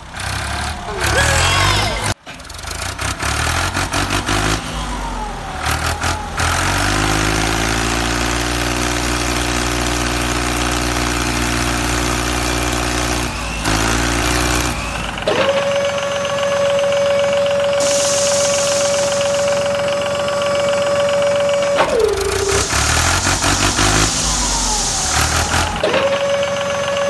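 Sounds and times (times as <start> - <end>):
tractor engine running: 0.0 - 25.9
steady high tone: 17.8 - 25.8.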